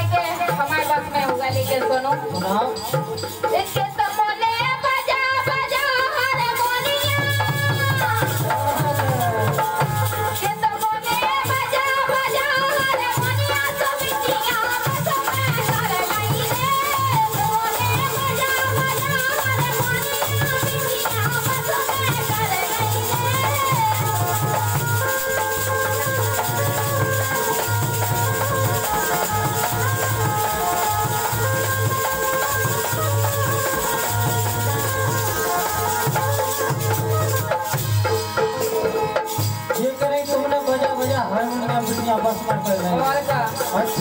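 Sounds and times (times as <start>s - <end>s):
dholak drum beat: 0.0s - 44.0s
harmonium: 0.0s - 44.0s
woman singing: 0.0s - 44.0s
shaker rattle: 14.0s - 37.8s.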